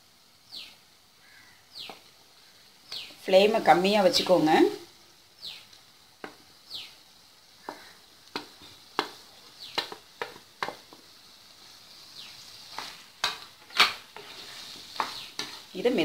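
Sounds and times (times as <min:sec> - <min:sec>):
faint sizzle: 0:00.0 - 0:16.0
wooden spatula scraping pan: 0:12.4 - 0:16.0.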